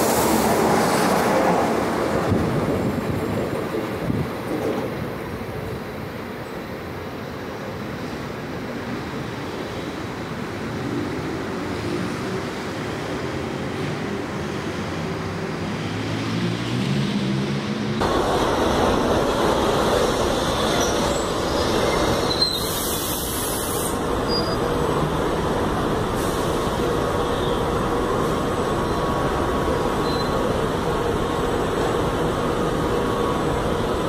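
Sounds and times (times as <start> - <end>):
train wheels rumbling on rail: 0.0 - 15.0, 16.8 - 34.0
brief high hiss: 22.4 - 24.0.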